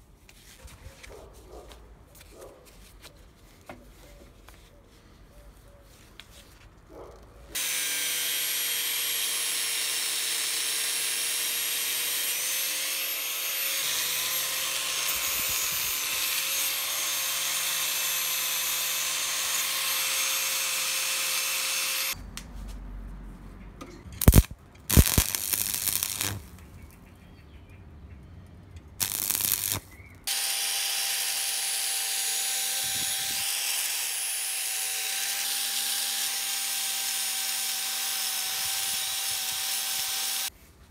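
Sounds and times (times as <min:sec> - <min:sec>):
angle grinder on steel: 0:07.6 - 0:22.2, 0:24.2 - 0:26.6, 0:29.0 - 0:40.5.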